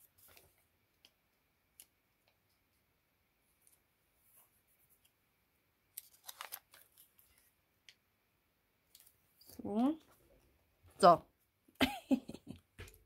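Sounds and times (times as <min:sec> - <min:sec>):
paper rustling: 0:00.0 - 0:00.6, 0:05.9 - 0:07.6.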